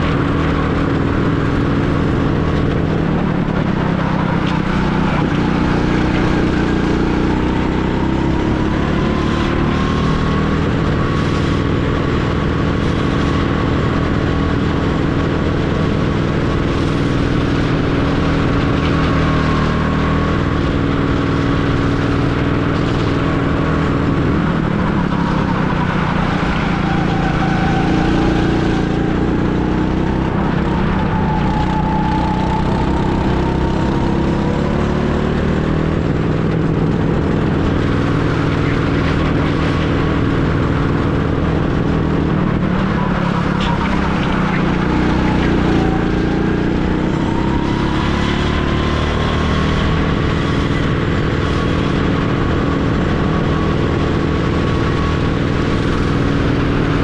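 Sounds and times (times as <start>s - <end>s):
go-kart engine revving: 0.0s - 57.0s.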